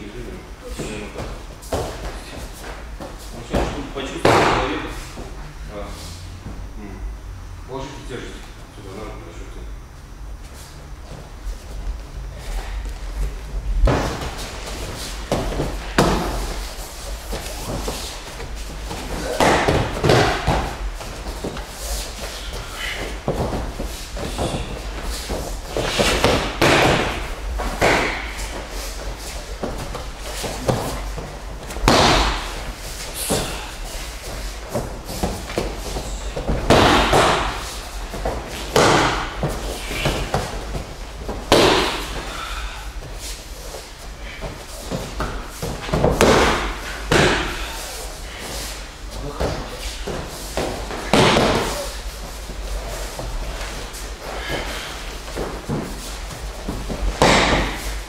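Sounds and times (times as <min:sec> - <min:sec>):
bodies thudding on mats: 0:00.7 - 0:05.2, 0:12.7 - 0:42.4, 0:43.0 - 0:58.0
bare feet shuffling on mat: 0:10.4 - 0:42.3, 0:43.0 - 0:58.0
body slamming onto padded mats: 0:13.8 - 0:16.6, 0:55.5 - 0:58.0.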